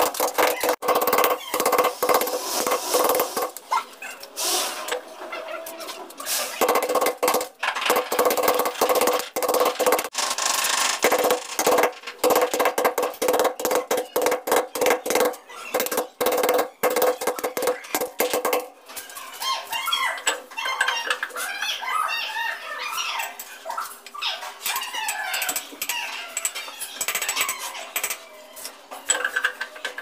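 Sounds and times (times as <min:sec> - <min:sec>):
metal tool scraping tiled wall: 0:00.0 - 0:03.6.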